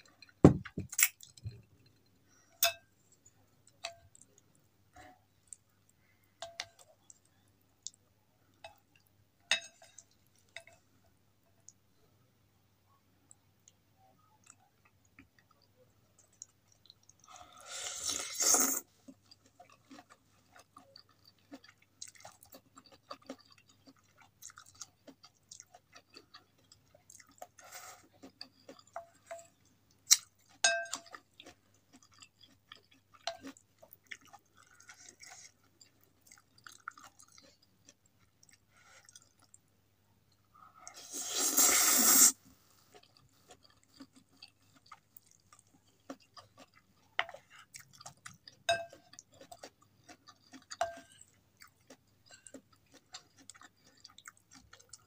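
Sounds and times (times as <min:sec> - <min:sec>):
utensil clinking on glass bowl: 0:02.6 - 0:02.9, 0:30.6 - 0:31.2, 0:48.7 - 0:49.2
wet chewing: 0:14.5 - 0:39.6, 0:42.9 - 0:55.0
slurping noodles: 0:17.3 - 0:18.9, 0:40.9 - 0:42.4.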